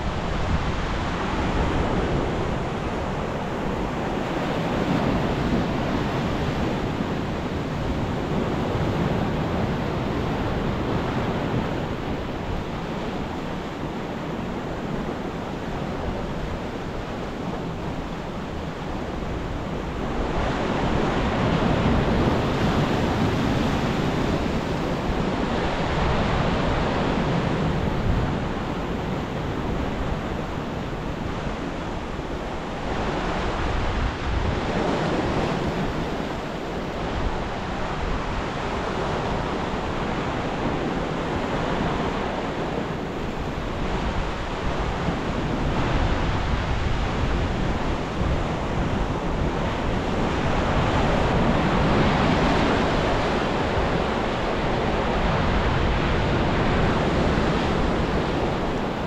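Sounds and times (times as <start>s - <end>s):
wind rumble on microphone: 0.0s - 59.0s
surf crashing on rocks: 14.8s - 59.0s.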